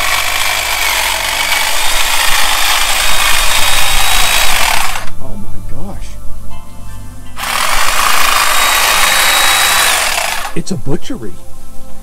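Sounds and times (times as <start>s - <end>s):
electric hedge trimmer cutting: 0.0s - 5.2s, 7.4s - 10.6s.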